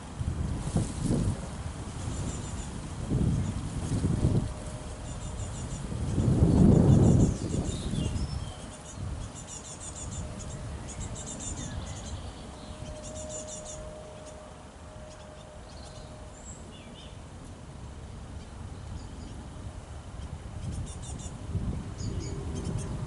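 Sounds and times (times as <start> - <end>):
wind rumble on microphone: 0.0 - 23.0
small birds chirping: 5.0 - 14.4, 15.0 - 17.2, 22.0 - 23.0.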